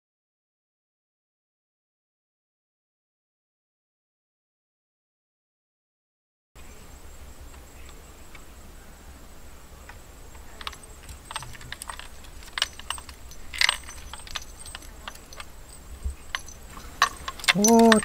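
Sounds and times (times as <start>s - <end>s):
low steady hum: 6.6s - 18.0s
bamboo pipes clicking and knocking: 9.9s - 18.0s.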